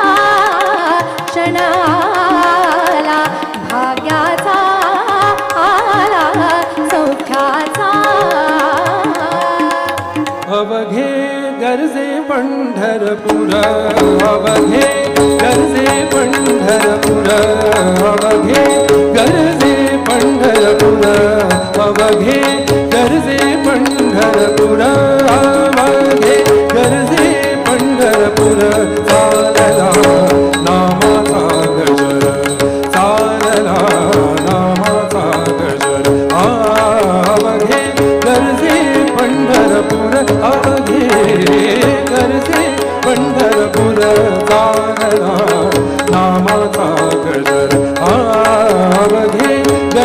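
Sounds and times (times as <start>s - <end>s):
tabla drumming: 0.0s - 11.9s, 12.8s - 50.0s
harmonium held notes: 0.0s - 50.0s
person singing: 0.0s - 50.0s.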